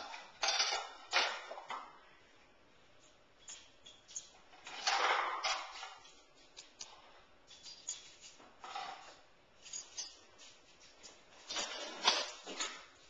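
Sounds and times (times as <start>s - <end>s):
dishes and utensils clattering: 0.0s - 1.9s, 3.4s - 6.8s, 7.5s - 10.6s.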